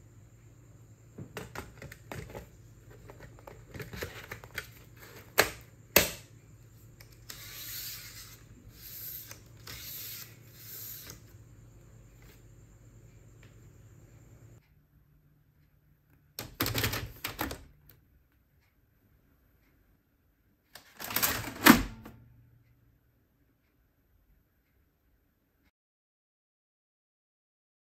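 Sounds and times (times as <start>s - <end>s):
plastic scraping on plastic: 1.3s - 5.6s.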